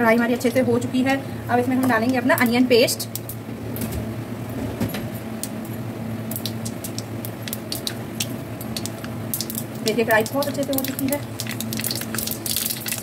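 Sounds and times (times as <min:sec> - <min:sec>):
steady low hum: 0:00.0 - 0:13.0
seeds popping in hot oil: 0:05.4 - 0:13.0.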